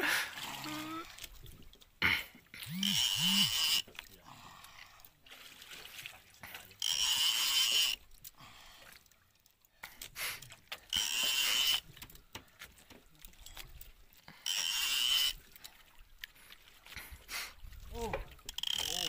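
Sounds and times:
fishing reel whirring: 0:02.6 - 0:03.9, 0:06.8 - 0:08.0, 0:10.8 - 0:11.9, 0:14.3 - 0:15.5, 0:18.4 - 0:19.0.

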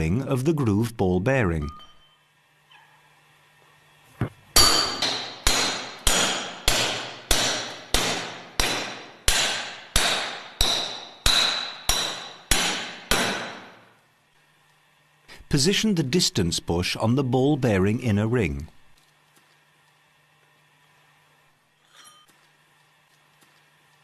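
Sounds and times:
hammer striking steel pipe: 0:04.6 - 0:13.8.

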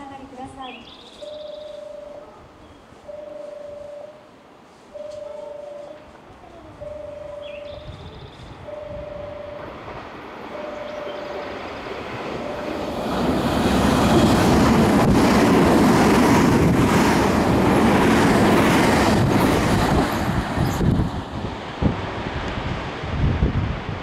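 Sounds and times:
electric train passing at speed: 0:00.0 - 0:02.3, 0:02.9 - 0:24.0
repeating beeping tone: 0:06.8 - 0:08.0, 0:08.7 - 0:09.8, 0:10.5 - 0:11.6.

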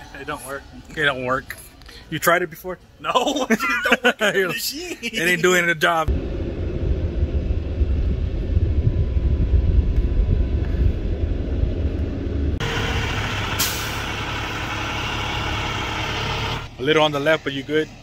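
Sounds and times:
low rumble: 0:06.1 - 0:15.8
truck diesel engine running: 0:06.1 - 0:18.0
air brake hiss: 0:13.6 - 0:14.0.

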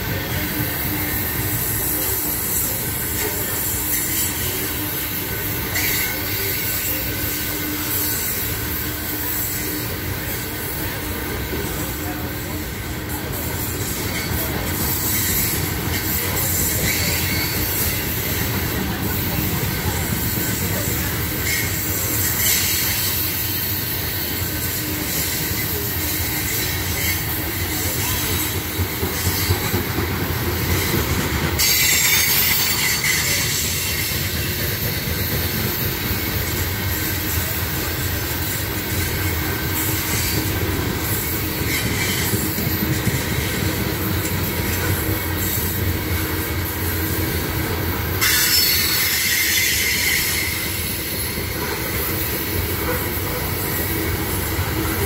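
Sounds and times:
freight train wheels rumbling: 0:00.0 - 0:55.0
high-pitched wheel squeal: 0:48.2 - 0:51.2.

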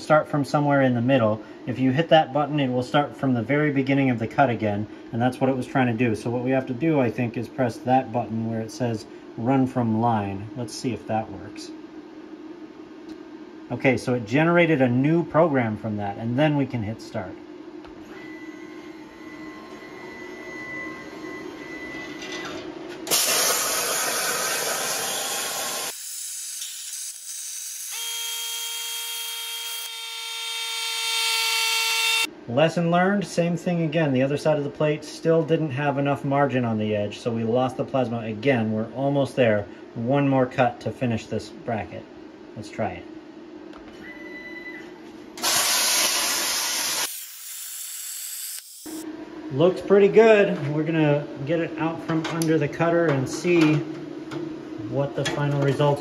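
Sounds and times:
multi-tone cutting whine: 0:16.4 - 0:32.3, 0:45.4 - 0:56.0
short steady tone: 0:18.2 - 0:22.3
plasma arc loud hiss: 0:23.1 - 0:27.4, 0:45.4 - 0:49.0.

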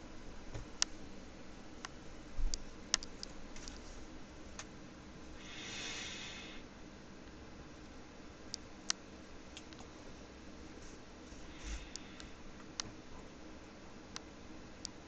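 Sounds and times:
soft hiss: 0:00.0 - 0:15.0
keyboard and mouse clicks: 0:02.9 - 0:03.8.

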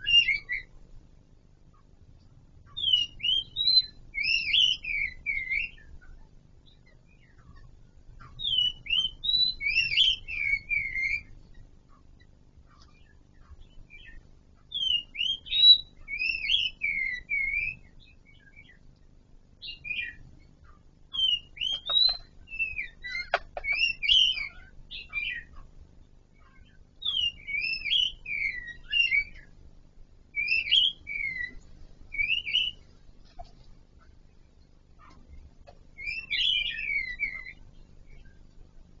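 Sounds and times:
bird singing whistled notes: 0:00.0 - 0:00.7, 0:02.7 - 0:06.0, 0:08.2 - 0:11.4, 0:12.9 - 0:18.8, 0:19.6 - 0:20.2, 0:21.1 - 0:25.6, 0:26.4 - 0:29.6, 0:30.3 - 0:32.9, 0:35.9 - 0:38.4.

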